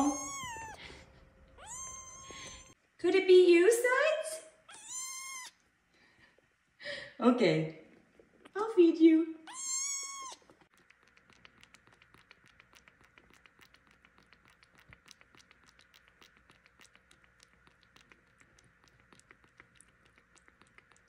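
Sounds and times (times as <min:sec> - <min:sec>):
kitten suckling wet clicks: 0:00.0 - 0:00.8, 0:09.5 - 0:21.0.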